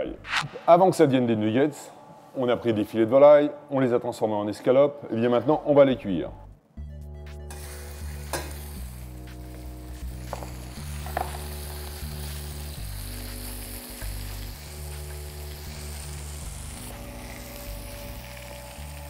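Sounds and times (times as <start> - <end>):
meat sizzling in a frying pan: 7.5 - 19.0.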